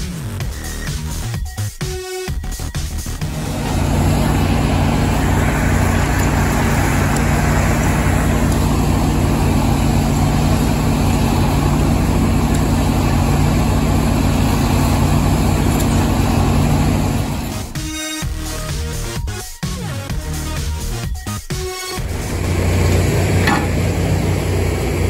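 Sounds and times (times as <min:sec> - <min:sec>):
heavy equipment engine droning: 0:02.9 - 0:17.9, 0:22.0 - 0:25.0.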